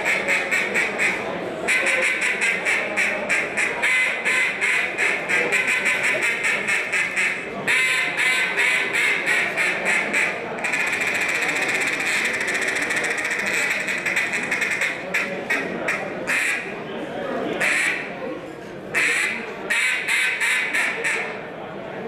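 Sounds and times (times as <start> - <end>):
duck call quacks: 0.0 - 16.7, 17.6 - 18.1, 18.9 - 21.4.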